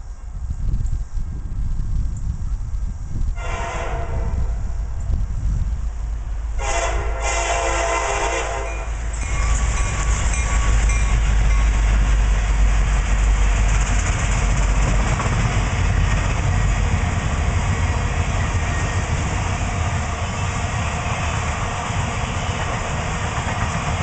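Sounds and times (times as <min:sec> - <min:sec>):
train wheels rumbling on rail: 0:00.0 - 0:24.0
locomotive horn: 0:03.4 - 0:04.6, 0:06.6 - 0:11.9
clickety-clack of wheels: 0:12.8 - 0:24.0.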